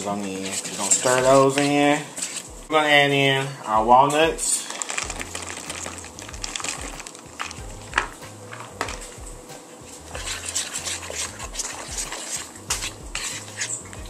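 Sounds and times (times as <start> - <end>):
whisk stirring batter: 0.0 - 2.6, 4.1 - 9.3, 9.9 - 14.0
nuts poured into a bowl: 4.4 - 7.6.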